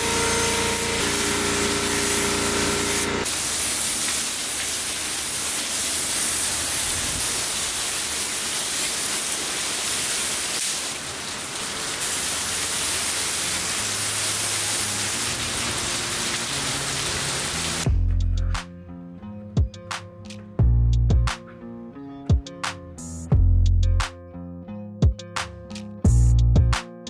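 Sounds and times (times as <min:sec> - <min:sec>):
paint spray gun hissing: 0:00.0 - 0:11.0.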